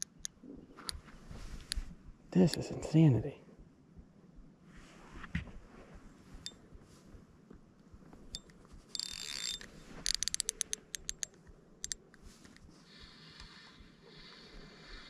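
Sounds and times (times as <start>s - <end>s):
fishing reel drag ratcheting: 8.3s - 12.0s.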